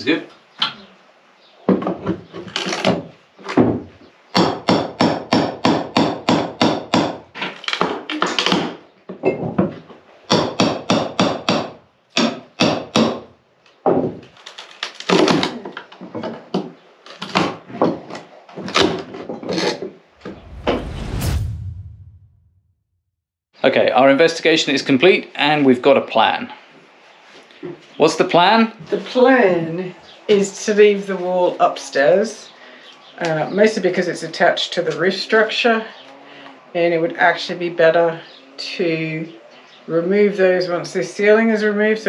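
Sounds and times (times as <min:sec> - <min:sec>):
hammer striking wood: 0:04.4 - 0:07.3, 0:10.3 - 0:13.2.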